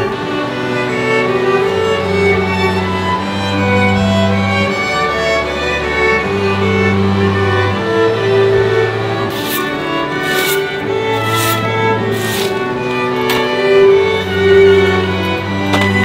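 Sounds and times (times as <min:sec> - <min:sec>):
slow instrumental background music: 0:05.8 - 0:16.0.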